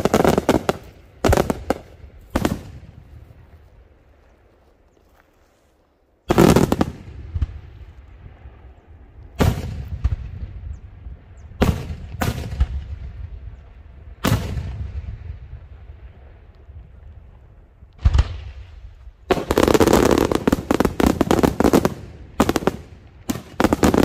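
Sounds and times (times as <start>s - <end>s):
fireworks bursting with loud bangs: 0.0s - 3.1s, 6.3s - 7.7s, 9.4s - 10.5s, 11.6s - 13.3s, 18.0s - 24.0s.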